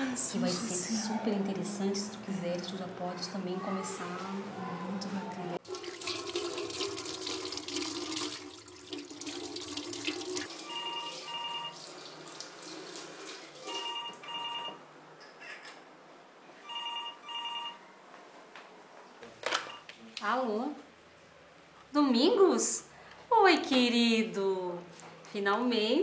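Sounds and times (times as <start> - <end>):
kitchen tap running: 5.6 - 13.8
telephone ringing: 10.5 - 11.8, 13.6 - 14.9, 16.6 - 17.9.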